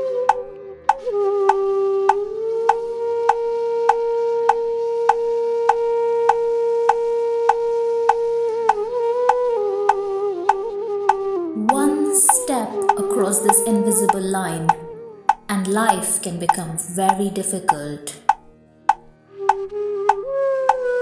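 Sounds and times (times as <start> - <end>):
melodic soundtrack music: 0.0 - 21.0
ticking beat: 11.6 - 20.9.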